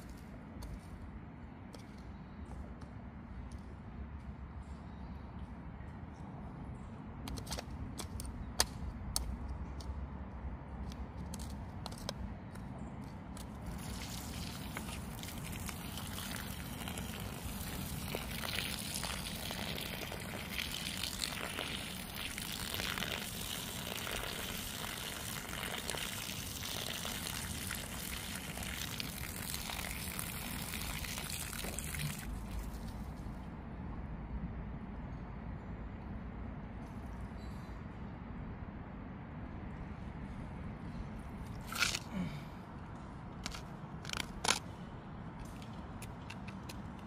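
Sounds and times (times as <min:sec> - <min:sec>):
hose water splashing on soil: 0:13.7 - 0:33.1.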